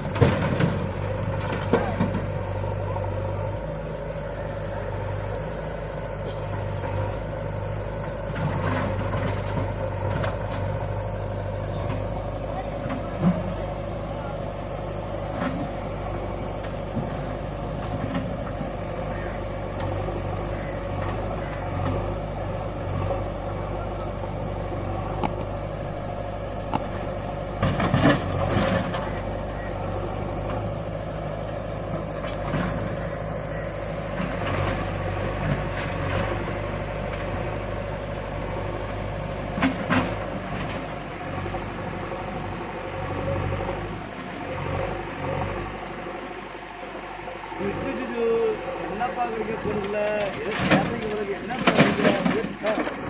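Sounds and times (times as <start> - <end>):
diesel engine running: 0.0 - 53.0.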